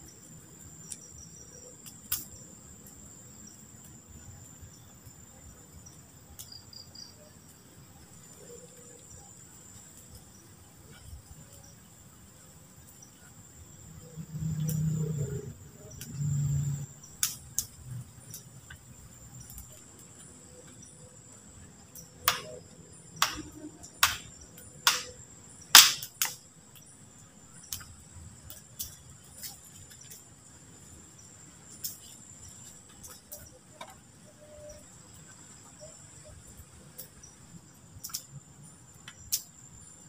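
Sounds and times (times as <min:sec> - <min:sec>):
insects chirring: 0:00.0 - 0:40.0
sharp cracks and knocks: 0:17.2 - 0:18.8, 0:22.0 - 0:26.4.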